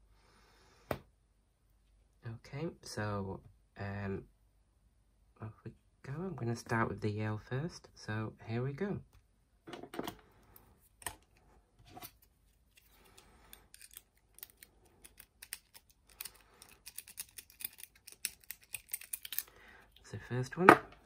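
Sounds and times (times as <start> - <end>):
lock pick clicking and scraping: 13.5 - 19.5.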